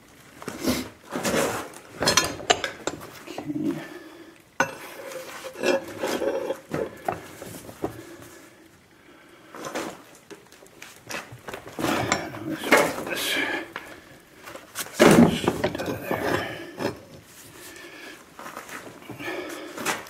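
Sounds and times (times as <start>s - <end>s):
metal rod clanking and scraping: 1.2s - 3.6s, 4.6s - 7.1s, 11.8s - 13.1s, 15.0s - 17.1s.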